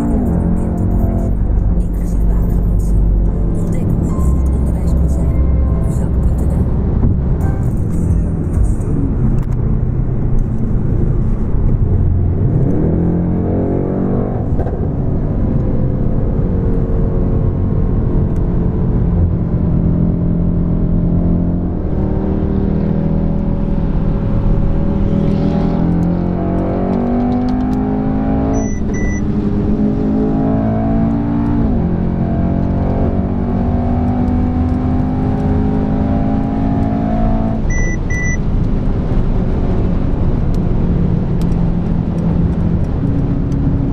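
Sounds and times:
car engine at full throttle: 0.0 - 43.9
electronic double beep: 28.5 - 29.2, 37.7 - 38.4.

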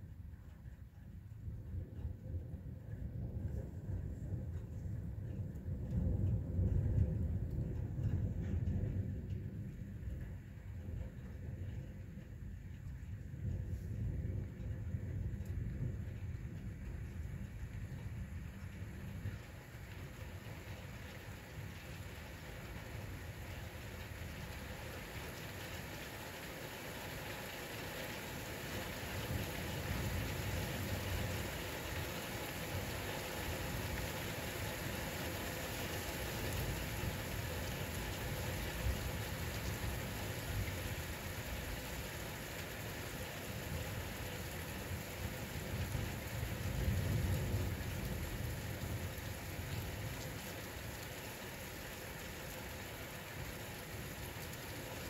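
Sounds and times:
steady rain falling: 0.0 - 55.0
low thunder rumbling: 1.4 - 55.0.

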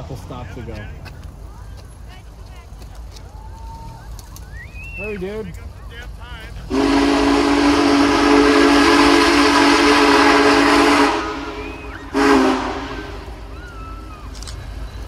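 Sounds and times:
rushing steam: 4.8 - 15.0
steam locomotive whistle chord: 6.7 - 14.1.

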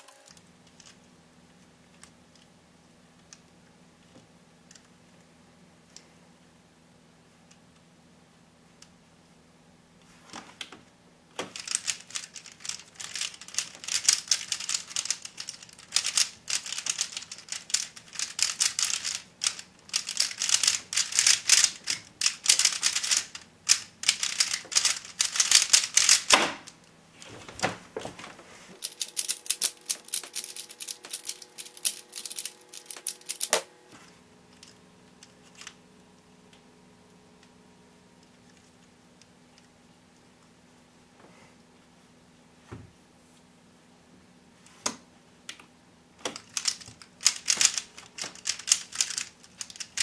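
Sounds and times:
puzzle cube clattering: 11.4 - 26.8, 28.8 - 33.6, 46.3 - 50.0.

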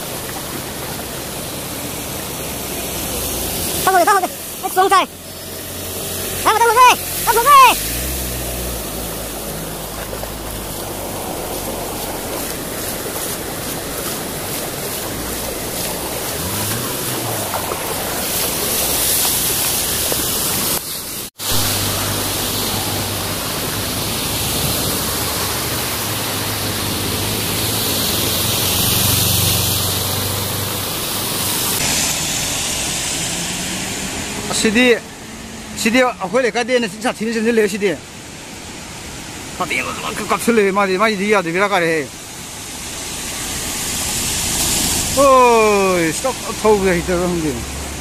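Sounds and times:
low engine hum: 0.0 - 35.8
road noise: 0.0 - 48.0
water rushing under vehicle: 0.0 - 48.0.

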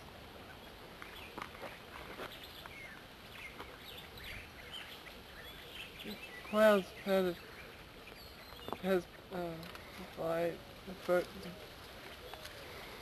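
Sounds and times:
low background noise: 0.0 - 13.0
faint bird chirps: 0.4 - 10.2.

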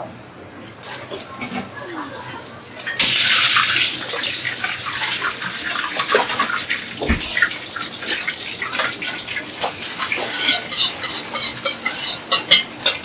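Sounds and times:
pots and utensils clinking: 0.8 - 13.0.

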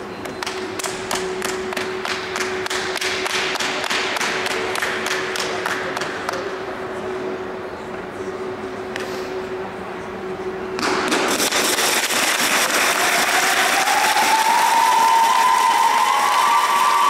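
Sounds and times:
steady humming tone: 0.0 - 17.0
audience clapping in unison: 2.0 - 6.4, 12.0 - 17.0.

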